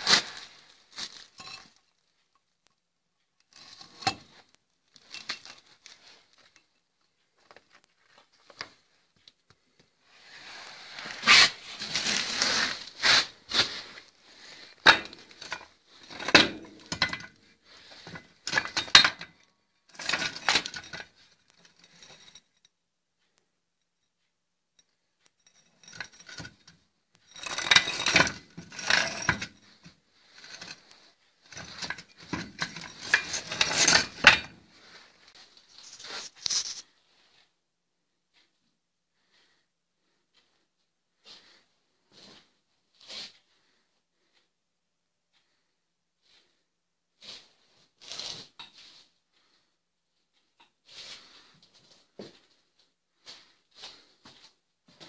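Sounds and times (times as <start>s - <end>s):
metal parts clanking and scraping: 0.0s - 1.8s, 3.6s - 6.7s, 10.9s - 22.5s, 25.4s - 36.8s.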